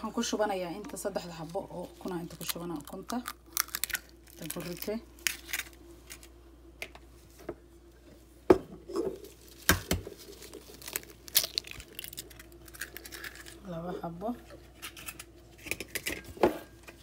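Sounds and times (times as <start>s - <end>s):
disposable gloves crinkling: 1.2s - 6.4s, 9.1s - 13.7s
eggshell crackling: 1.6s - 5.8s, 9.4s - 13.7s.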